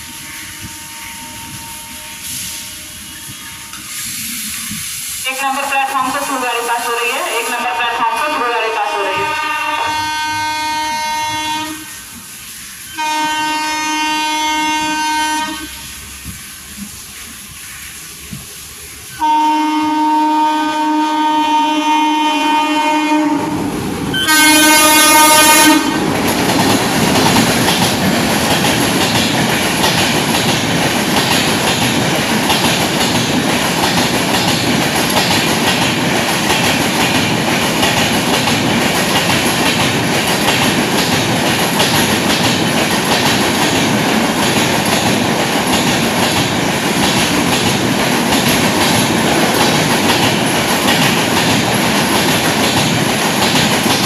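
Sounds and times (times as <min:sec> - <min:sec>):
train horn blast: 0:00.0 - 0:03.9, 0:08.4 - 0:12.0, 0:12.9 - 0:16.1, 0:19.1 - 0:23.6, 0:24.2 - 0:26.0
train coaches rattling past: 0:00.0 - 0:54.0
wheels clacking over rail joints: 0:26.0 - 0:54.0.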